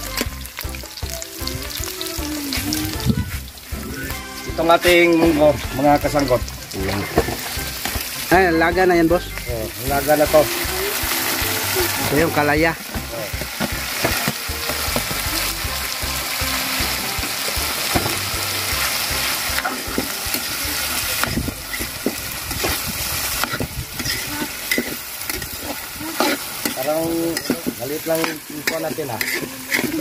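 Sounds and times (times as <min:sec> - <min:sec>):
beans sizzling in hot oil: 0:00.0 - 0:30.0
metal ladle scraping and clinking: 0:21.2 - 0:30.0.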